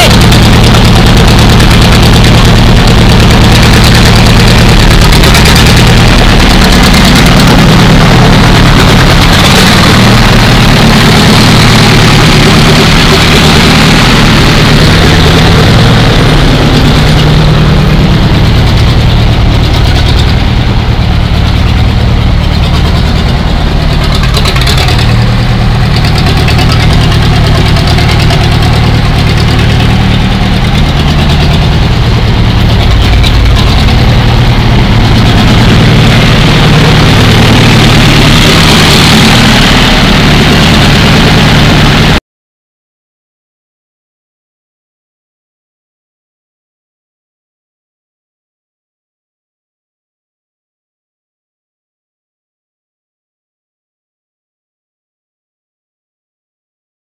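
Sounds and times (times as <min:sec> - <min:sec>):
crawler engine idling: 0:00.0 - 0:42.2.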